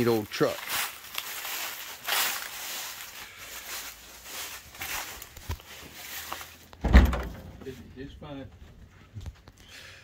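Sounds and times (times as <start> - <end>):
footsteps through dry leaves: 0.0 - 6.7.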